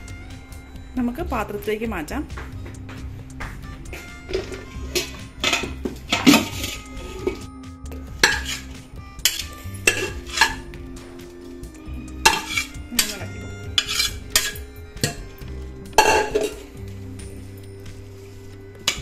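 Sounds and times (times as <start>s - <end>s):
metal spoon scraping a steel pot: 4.3s - 7.5s, 8.1s - 10.7s, 12.2s - 16.8s, 18.2s - 19.0s.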